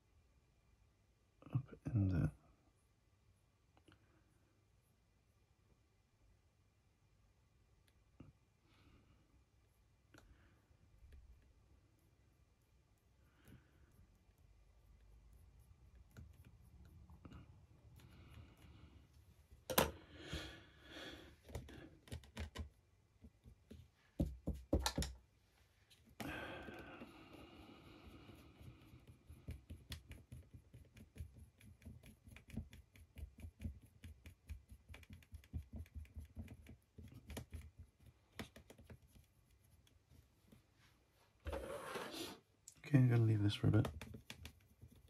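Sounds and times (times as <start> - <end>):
small clicks and taps of hands: 21.4 - 25.2, 28.7 - 39.9.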